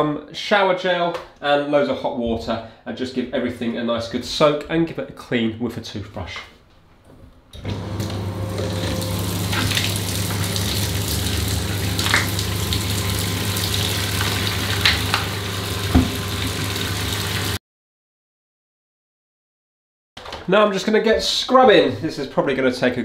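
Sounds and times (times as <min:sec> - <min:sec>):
water running into bathtub: 0:07.6 - 0:17.6.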